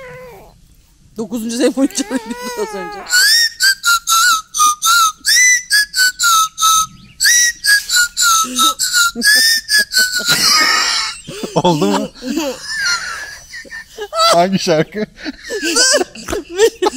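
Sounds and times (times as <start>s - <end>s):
toy whistle tune: 3.0s - 11.2s.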